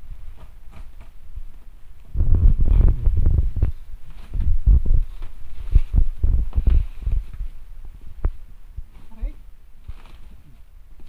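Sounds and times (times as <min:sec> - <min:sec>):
plastic wrap rustling: 0:09.8 - 0:11.0.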